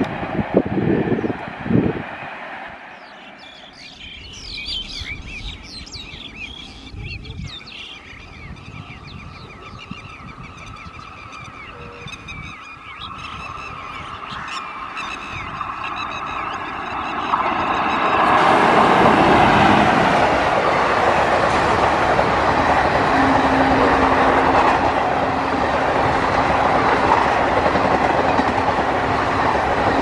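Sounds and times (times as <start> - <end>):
train hum and rumble: 0.0 - 30.0
birds chirping and calling: 3.0 - 18.4.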